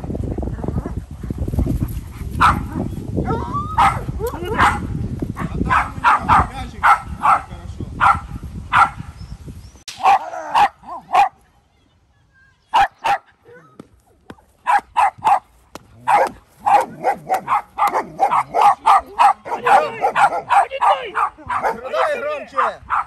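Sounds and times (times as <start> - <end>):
dog barking: 2.4 - 2.9, 3.8 - 9.0, 10.0 - 11.4, 12.7 - 13.3, 14.6 - 23.0.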